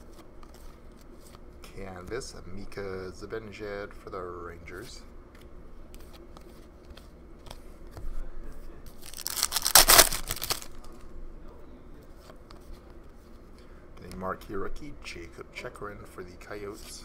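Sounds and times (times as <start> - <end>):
cardboard cards handled: 8.9 - 11.0
foil wrapper ripping: 9.0 - 10.9.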